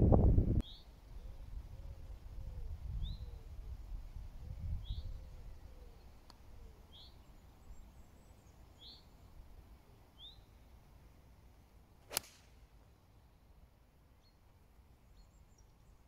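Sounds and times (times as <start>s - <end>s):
bird chirping: 0.6s - 2.2s, 4.6s - 9.4s, 10.1s - 10.6s, 14.2s - 16.0s
golf iron striking ball: 12.1s - 12.6s.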